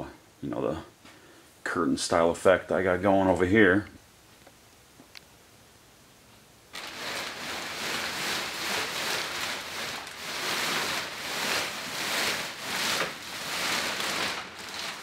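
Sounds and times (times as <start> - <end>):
plastic sheeting rustling: 6.7 - 15.0.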